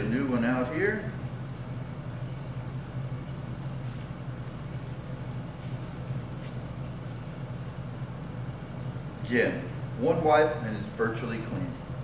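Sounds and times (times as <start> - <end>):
low background hum: 0.0 - 12.0
cloth wipe rubbing a palm: 4.9 - 7.9.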